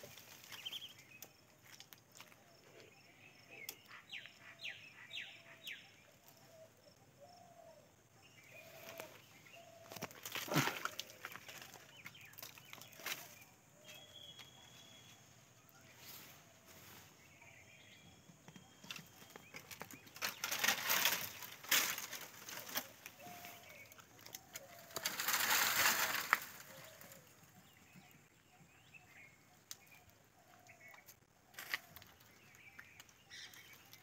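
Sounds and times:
dry leaves and twigs rustling: 0.0s - 3.0s, 8.4s - 17.8s, 18.8s - 28.4s, 29.1s - 34.0s
twigs snapping: 9.8s - 13.4s, 19.5s - 27.2s, 29.6s - 30.0s.

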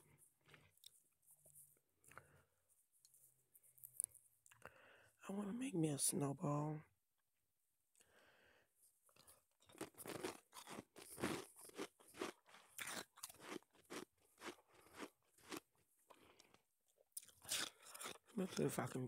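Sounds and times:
ice crunching between teeth: 9.2s - 16.6s, 17.2s - 19.0s.

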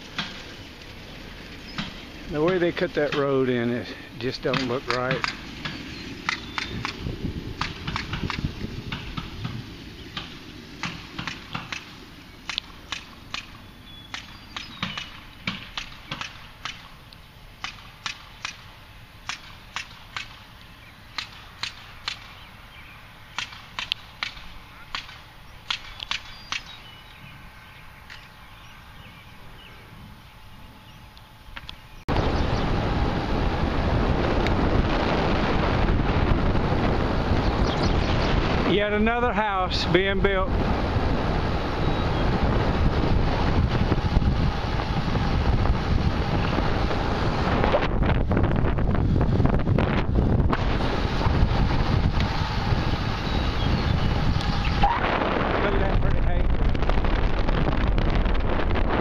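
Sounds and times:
distant hammer blows: 0.0s - 0.6s, 1.7s - 22.6s
wind on microphone: 0.0s - 16.9s, 19.3s - 59.0s.

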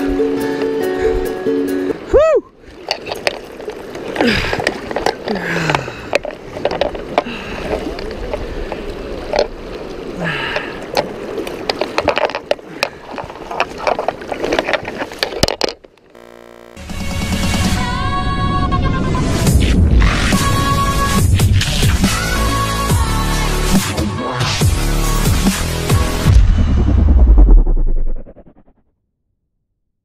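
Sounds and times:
river water rushing and splashing: 0.0s - 15.6s
knocks and rubbing of fishing gear: 2.7s - 9.6s, 10.6s - 16.5s.

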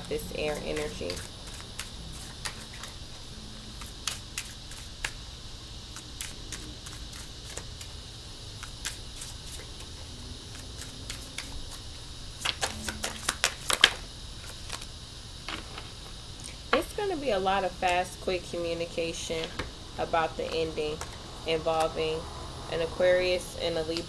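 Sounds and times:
cards being shuffled: 0.5s - 3.0s, 12.4s - 14.9s.

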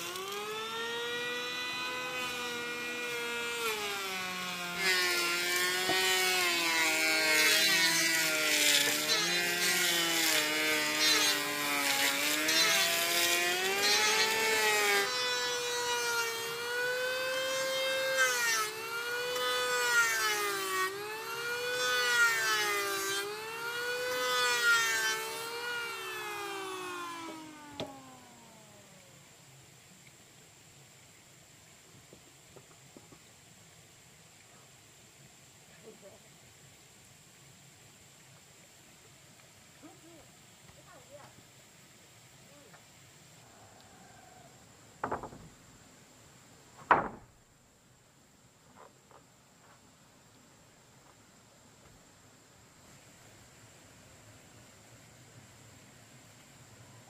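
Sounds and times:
power tool motor whine: 0.0s - 29.1s.

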